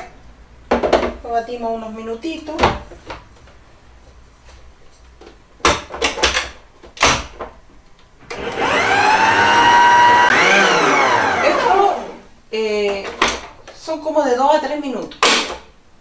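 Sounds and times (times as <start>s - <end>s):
stand mixer motor whine: 8.3s - 12.2s.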